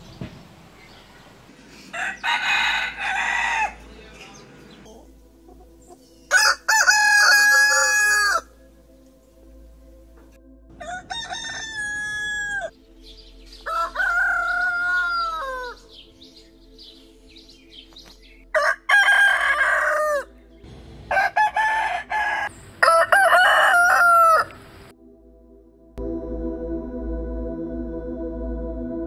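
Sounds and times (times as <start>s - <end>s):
roosters crowing: 1.7s - 4.7s, 6.3s - 8.5s, 10.7s - 12.7s, 13.6s - 15.8s, 18.5s - 20.3s, 21.1s - 24.8s.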